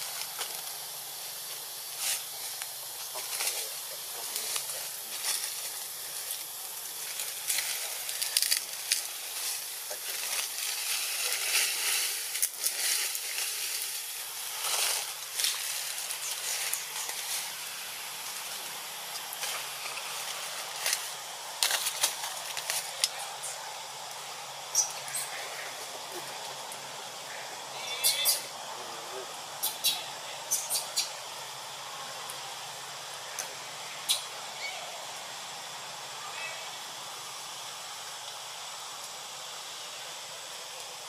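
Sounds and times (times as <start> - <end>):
crackles and rustles: 0.0 - 27.3
steady high hiss: 0.0 - 41.0.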